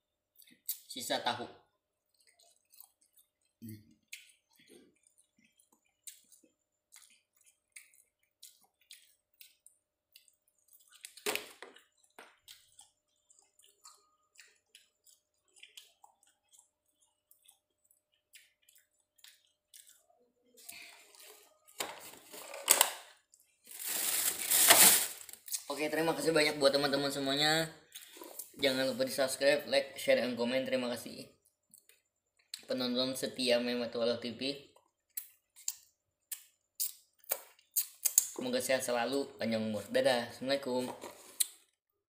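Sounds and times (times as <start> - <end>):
wet mouth clicks from chewing: 2.0 - 20.1, 34.8 - 38.4
plastic food box crackling: 21.8 - 25.5.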